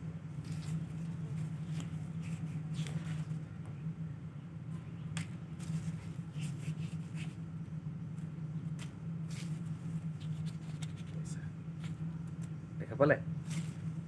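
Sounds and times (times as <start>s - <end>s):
steady low hum: 0.0s - 14.0s
paper crinkles: 0.4s - 3.5s, 8.7s - 12.6s
banknotes rustling: 0.4s - 3.6s, 5.2s - 7.4s, 8.7s - 12.6s, 13.4s - 14.0s.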